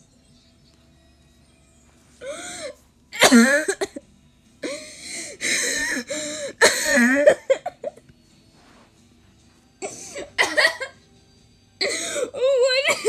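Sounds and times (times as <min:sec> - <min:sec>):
person coughing: 0:03.2 - 0:04.0, 0:05.5 - 0:08.0, 0:09.8 - 0:11.0, 0:11.8 - 0:13.0.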